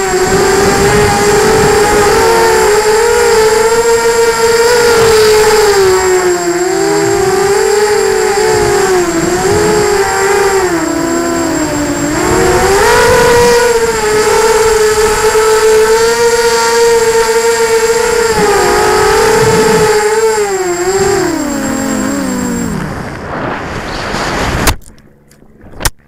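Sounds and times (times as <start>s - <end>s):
drone propellers whining: 0.0s - 25.7s.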